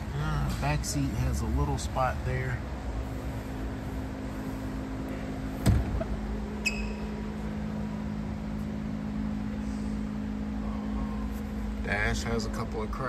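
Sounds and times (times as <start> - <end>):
low background hum: 0.0 - 13.0
thump: 5.6 - 6.0.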